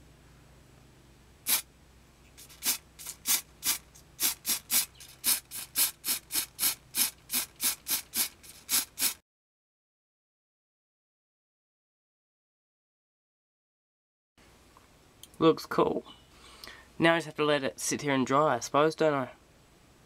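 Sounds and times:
spray paint can hissing: 1.5s - 1.7s, 2.3s - 9.2s.

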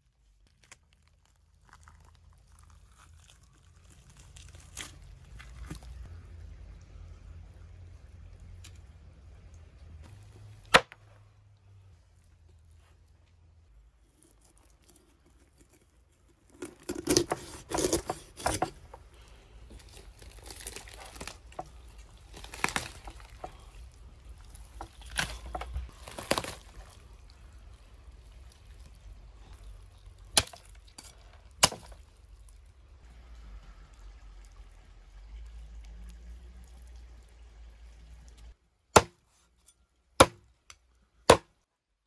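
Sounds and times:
roasted meat tearing: 0.3s - 6.1s, 14.0s - 32.7s.

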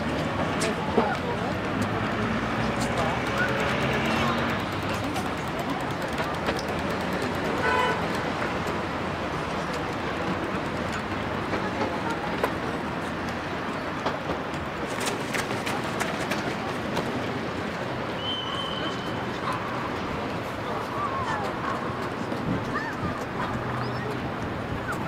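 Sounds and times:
distant voices: 0.0s - 25.0s
traffic: 0.0s - 25.0s
car horn toot: 7.6s - 8.0s.

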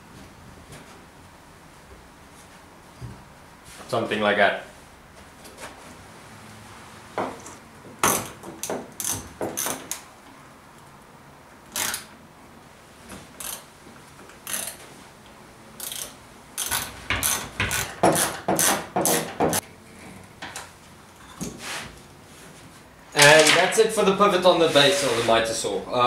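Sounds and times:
bar clamps ratcheting clicks: 11.7s - 12.1s, 13.4s - 13.6s, 14.4s - 14.8s, 15.8s - 19.2s
clamps clattering: 23.2s - 23.8s.

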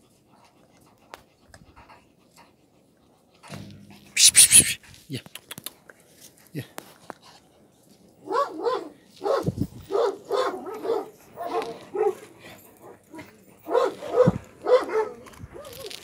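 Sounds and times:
puppies barking and yipping: 4.2s - 4.8s.

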